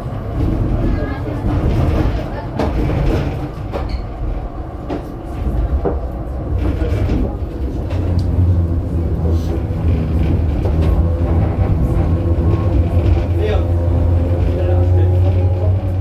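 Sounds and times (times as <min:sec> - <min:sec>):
tram rumble and hum: 0:00.0 - 0:16.0.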